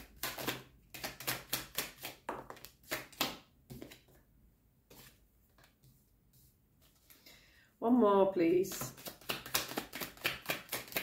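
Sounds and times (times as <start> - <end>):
cards being shuffled: 0.0 - 4.2, 8.7 - 11.0.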